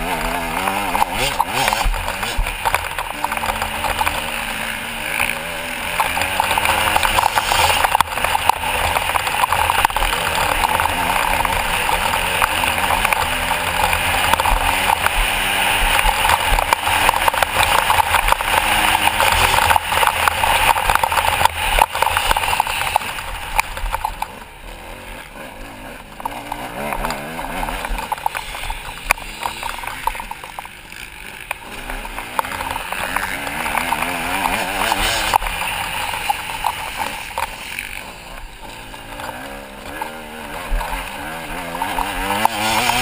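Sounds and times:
motocross engine revving: 0.0 - 43.0.

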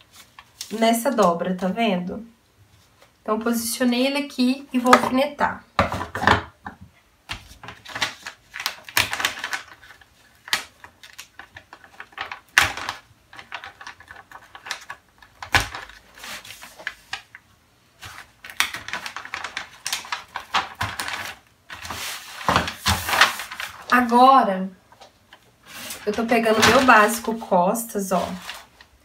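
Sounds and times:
paper crinkling and rustling: 0.0 - 0.8, 7.3 - 24.2, 24.9 - 29.0.

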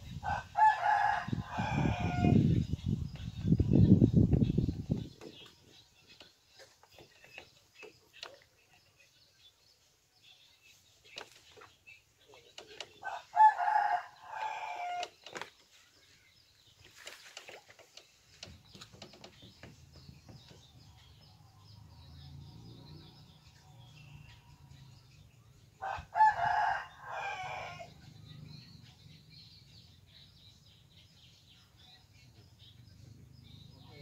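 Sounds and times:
rooster crowing: 0.3 - 2.4, 13.1 - 15.0, 25.8 - 27.9.

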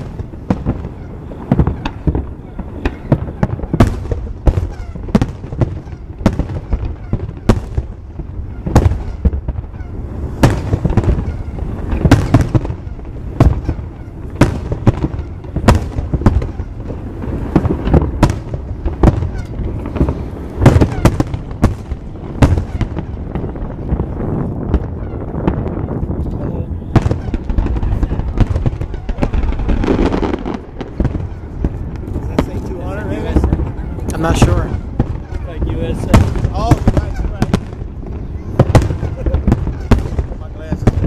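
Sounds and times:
fireworks shells bursting: 0.0 - 25.8.

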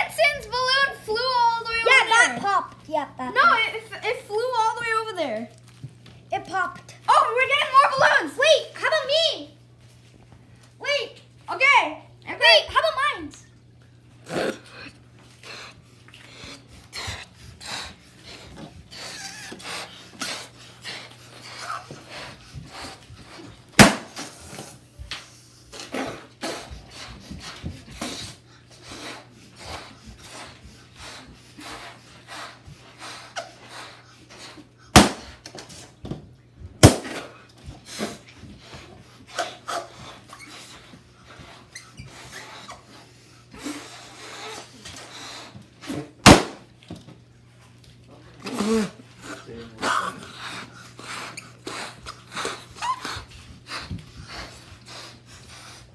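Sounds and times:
breathy puffs blowing up balloons: 14.1 - 36.0, 36.8 - 46.6, 48.3 - 55.9
balloons popping: 23.8 - 24.4, 35.0 - 35.4, 36.8 - 37.3, 46.2 - 46.7.

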